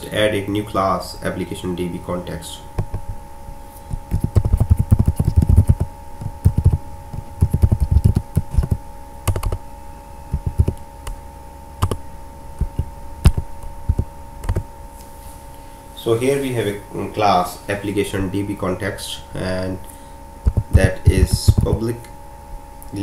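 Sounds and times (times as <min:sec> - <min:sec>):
typing on computer keyboard: 0:04.1 - 0:06.8, 0:07.4 - 0:09.6, 0:10.3 - 0:10.8, 0:13.3 - 0:14.6.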